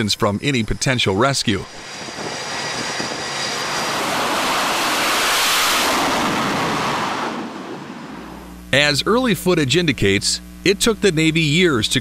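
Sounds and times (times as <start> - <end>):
fighter jet engine roar: 0.0 - 8.9.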